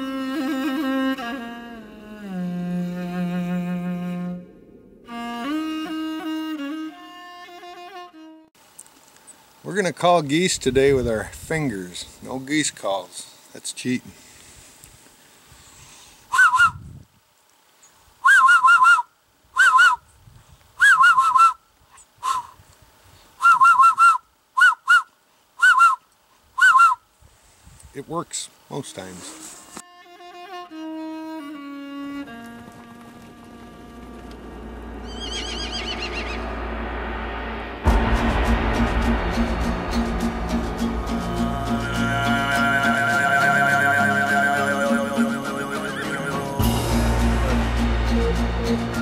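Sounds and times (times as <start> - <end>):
man blowing hand goose call: 0.0 - 4.4, 5.1 - 8.5, 16.3 - 16.9, 18.2 - 20.0, 20.8 - 21.6, 22.2 - 22.6, 23.4 - 27.0, 41.7 - 49.0.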